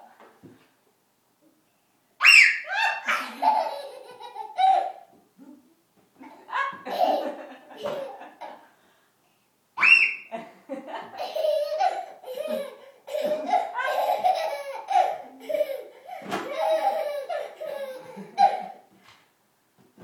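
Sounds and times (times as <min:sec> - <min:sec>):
toddler squealing: 0:02.2 - 0:03.2, 0:09.8 - 0:10.3
toddler laughing: 0:02.2 - 0:05.1, 0:06.2 - 0:08.6, 0:11.1 - 0:18.9.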